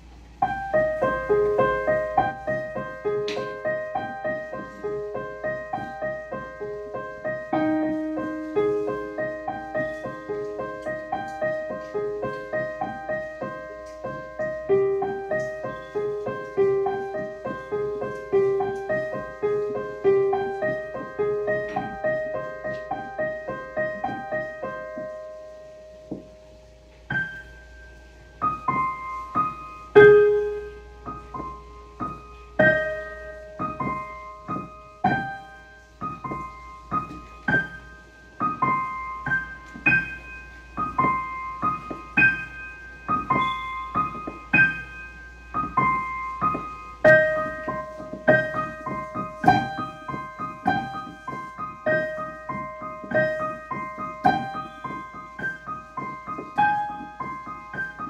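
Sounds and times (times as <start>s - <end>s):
solo piano melody: 0.0s - 58.0s.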